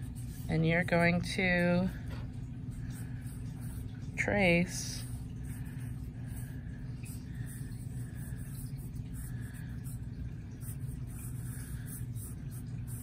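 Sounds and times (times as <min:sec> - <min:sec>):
marker scratching on paper: 0:00.0 - 0:01.9, 0:07.1 - 0:10.0, 0:10.6 - 0:13.0.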